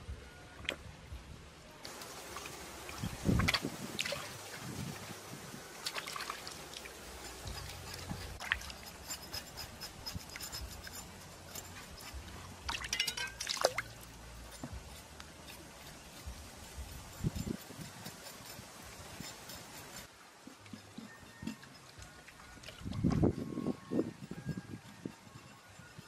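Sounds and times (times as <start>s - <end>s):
water splashing and dripping: 1.9s - 8.7s, 12.6s - 14.2s.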